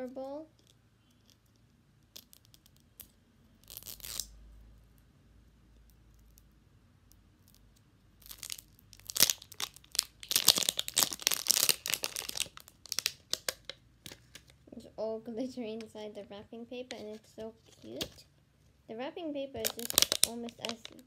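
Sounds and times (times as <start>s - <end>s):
wrapping paper tearing and crinkling: 8.2s - 13.7s, 19.6s - 21.0s.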